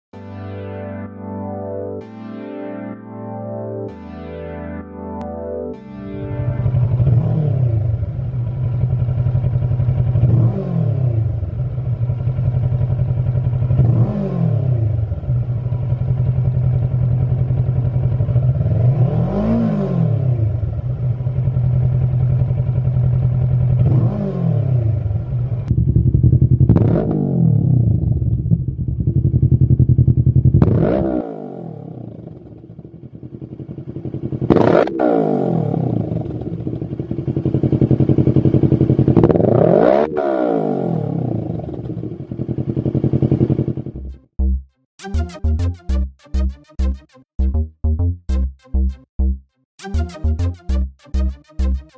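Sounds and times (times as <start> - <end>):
motorcycle engine idling and revving: 6.4 - 44.6.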